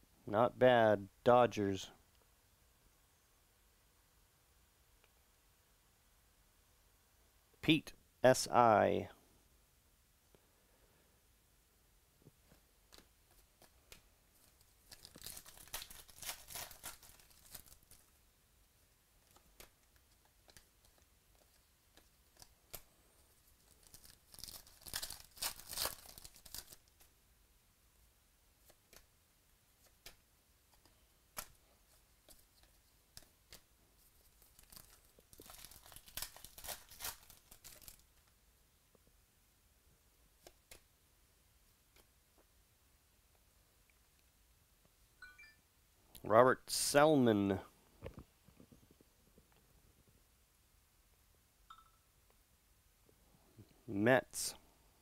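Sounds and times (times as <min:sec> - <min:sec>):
foil wrappers tearing and crinkling: 0:14.8 - 0:18.1, 0:23.6 - 0:27.1, 0:34.3 - 0:38.1.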